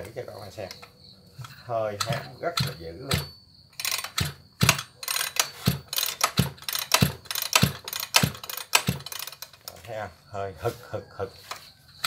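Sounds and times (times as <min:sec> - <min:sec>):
recoil starter ratchet clicks: 0:00.6 - 0:09.9
piston compression thuds: 0:01.4 - 0:09.4.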